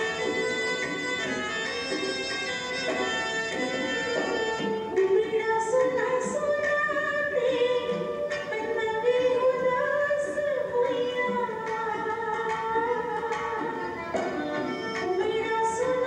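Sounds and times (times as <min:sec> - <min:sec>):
instrumental accompaniment: 0:00.0 - 0:16.0
woman singing: 0:03.8 - 0:16.0.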